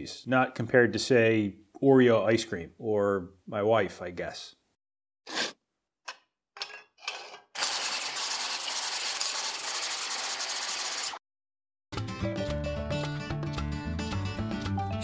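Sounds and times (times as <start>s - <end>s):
background music: 11.9s - 15.0s.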